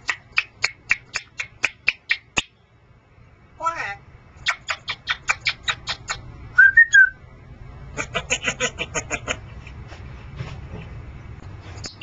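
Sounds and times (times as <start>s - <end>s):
parrot clicking: 0.0s - 2.5s.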